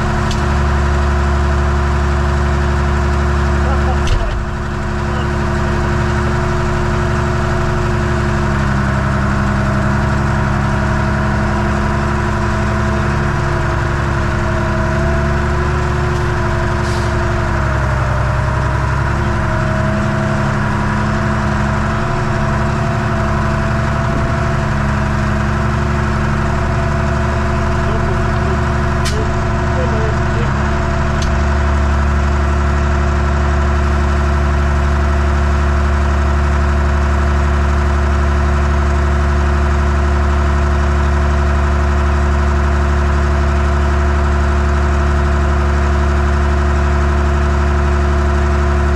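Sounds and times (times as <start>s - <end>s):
diesel tractor engine running: 0.0s - 48.9s.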